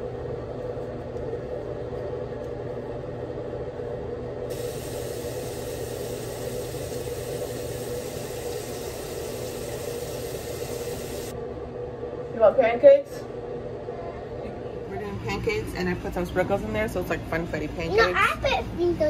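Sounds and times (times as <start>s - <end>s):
water running from tap: 4.5s - 11.3s.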